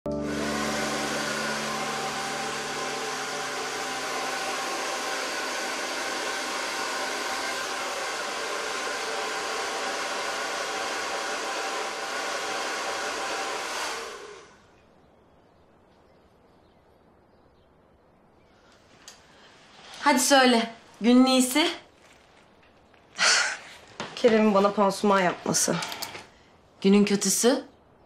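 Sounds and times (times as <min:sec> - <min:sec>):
hair dryer running: 0:00.0 - 0:14.7, 0:25.4 - 0:26.3.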